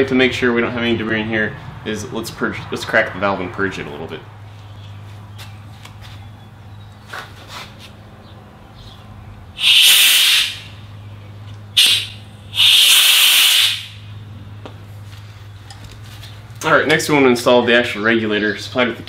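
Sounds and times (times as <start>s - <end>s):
gas hissing from valve: 9.6s - 10.8s, 11.8s - 14.0s.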